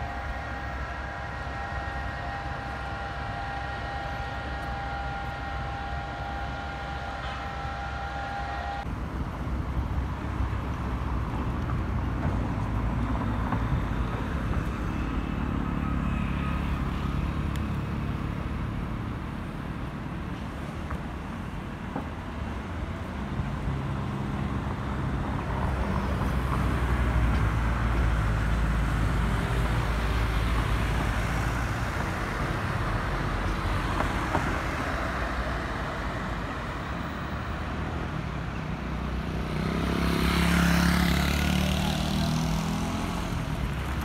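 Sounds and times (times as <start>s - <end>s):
road traffic rumbling: 0.0s - 44.0s
vehicle passing close: 24.2s - 44.0s.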